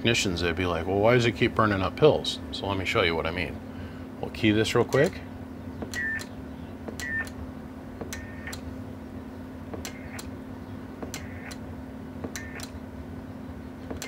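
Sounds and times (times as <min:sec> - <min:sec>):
steady low hum: 0:00.0 - 0:14.0
relays clicking: 0:04.7 - 0:05.2, 0:08.0 - 0:08.7, 0:09.7 - 0:10.3, 0:11.0 - 0:12.8.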